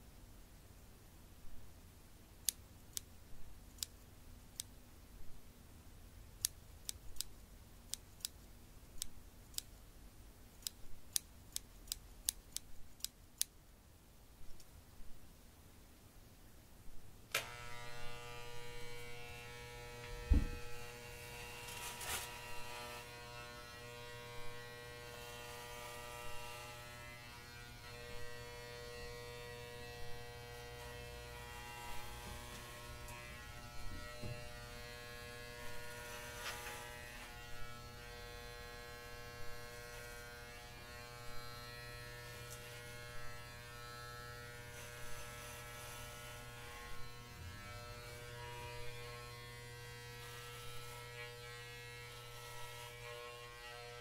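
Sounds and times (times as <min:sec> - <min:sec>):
electric hair clipper buzzing: 0:17.3 - 0:54.0.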